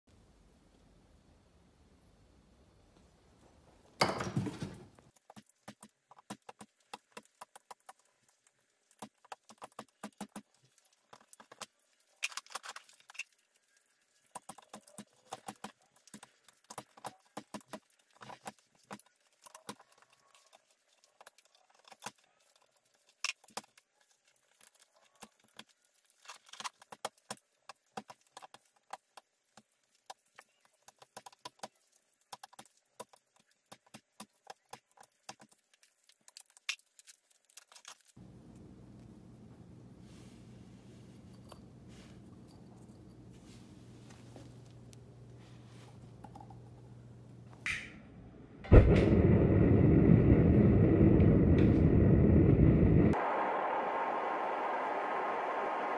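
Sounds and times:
thump: 0:48.7 - 0:49.5.

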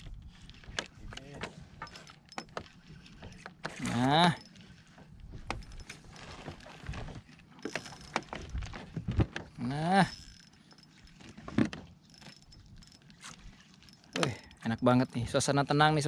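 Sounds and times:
fishing reel clicking: 0:07.6 - 0:08.6, 0:09.7 - 0:11.4, 0:12.0 - 0:15.2.

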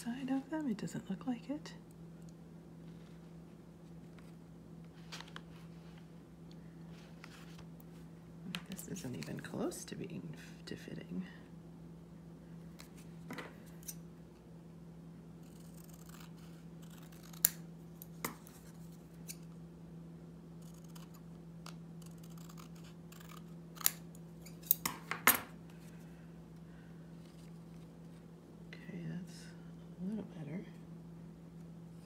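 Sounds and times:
faint steady hum: 0:00.0 - 0:32.0
soft paper rustling: 0:02.8 - 0:06.2, 0:06.9 - 0:08.1
scissors snipping cardstock: 0:15.5 - 0:18.6, 0:20.6 - 0:24.9.

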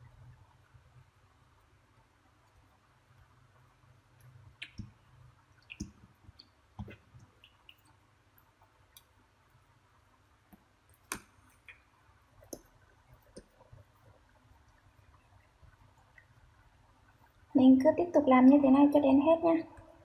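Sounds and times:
hands shaping dough taps: 0:10.5 - 0:14.2.

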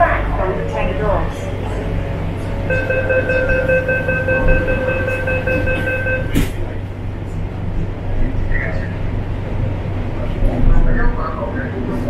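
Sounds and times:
train carriage low hum: 0:00.0 - 0:12.0
rapid high warning beeps: 0:02.7 - 0:06.4
sliding doors banging shut: 0:04.5 - 0:06.6.

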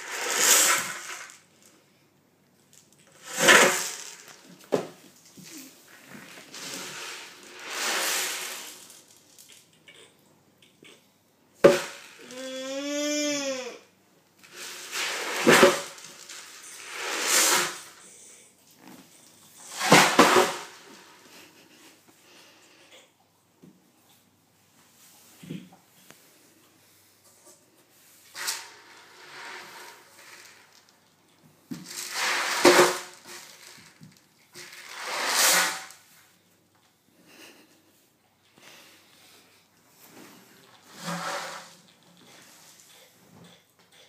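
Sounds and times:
ocean drum beads swishing: 0:00.0 - 0:01.4, 0:03.2 - 0:04.6, 0:05.6 - 0:09.4, 0:14.5 - 0:18.0, 0:31.8 - 0:34.0, 0:34.6 - 0:36.2.

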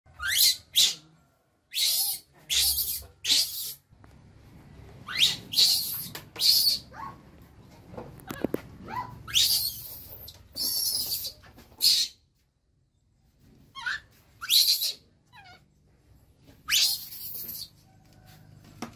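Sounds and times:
baby monkey screaming: 0:00.1 - 0:01.1, 0:01.7 - 0:03.8, 0:05.0 - 0:07.2, 0:08.3 - 0:12.2, 0:13.7 - 0:15.6, 0:16.6 - 0:17.7.

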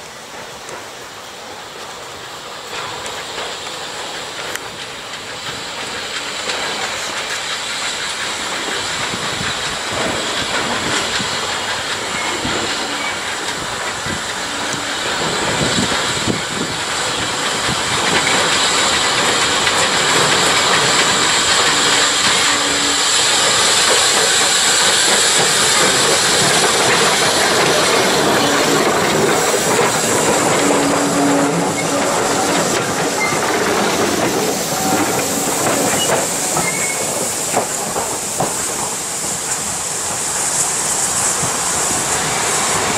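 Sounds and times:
steam locomotive passing: 0:00.0 - 0:42.9.

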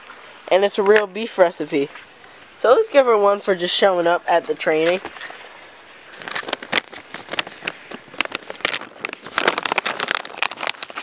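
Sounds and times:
plastic pouch crinkling: 0:06.1 - 0:11.0.

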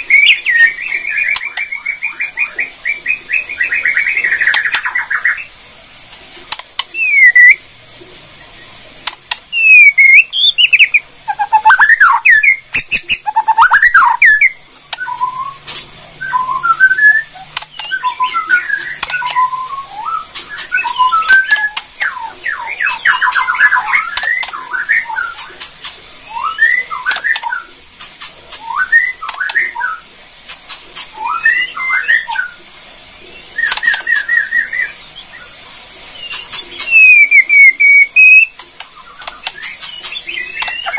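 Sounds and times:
bird singing whistled phrases: 0:00.0 - 0:05.5, 0:06.9 - 0:07.6, 0:09.5 - 0:25.5, 0:26.2 - 0:27.7, 0:28.6 - 0:30.0, 0:31.2 - 0:32.6, 0:33.5 - 0:35.5, 0:36.2 - 0:40.9
bird sharp clicking notes: 0:09.0 - 0:15.9, 0:17.0 - 0:19.5, 0:36.3 - 0:40.9.

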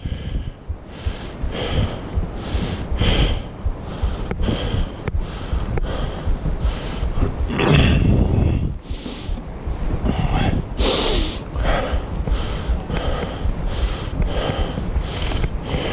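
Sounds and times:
wind rumble: 0:00.0 - 0:15.9
footsteps on dirt trail: 0:08.2 - 0:15.9.

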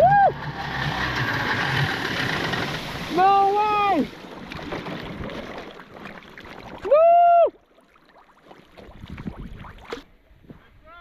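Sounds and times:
water sloshing and splashing: 0:00.5 - 0:10.2
person yelling: 0:03.1 - 0:04.1, 0:06.8 - 0:07.5.

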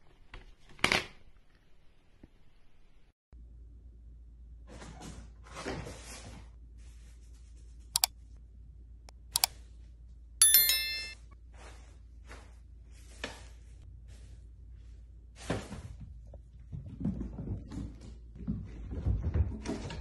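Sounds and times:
bright bell ding: 0:10.4 - 0:11.2.

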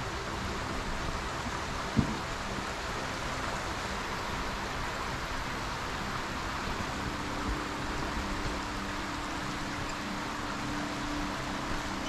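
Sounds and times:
stream running over stones: 0:00.0 - 0:12.0
short low thump: 0:02.0 - 0:02.2.

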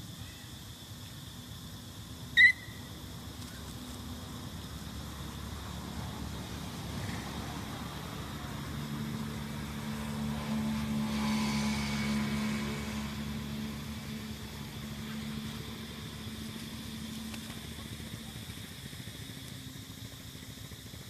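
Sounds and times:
vehicle engine passing by: 0:04.0 - 0:19.4.

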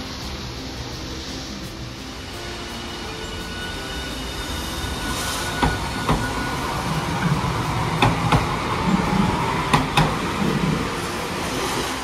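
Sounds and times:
tram rumbling past: 0:00.0 - 0:12.0
wheels clacking over rail joints: 0:04.8 - 0:12.0.

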